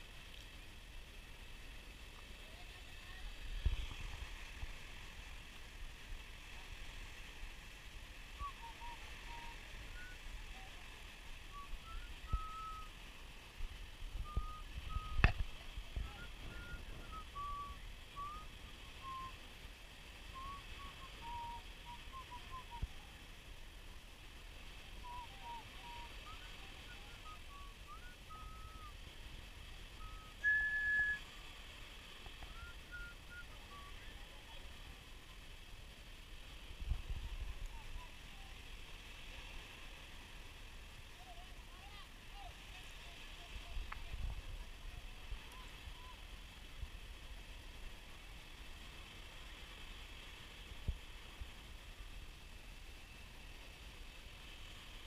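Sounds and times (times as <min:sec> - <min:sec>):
faint low rumble: 0:00.0 - 0:55.0
steady high whistle tone: 0:08.4 - 0:10.7, 0:11.4 - 0:13.0, 0:14.2 - 0:15.4, 0:16.0 - 0:19.4, 0:20.3 - 0:22.9, 0:25.0 - 0:29.0, 0:29.9 - 0:31.3, 0:32.4 - 0:34.0
short high chirps: 0:11.6 - 0:12.9, 0:30.0 - 0:31.2.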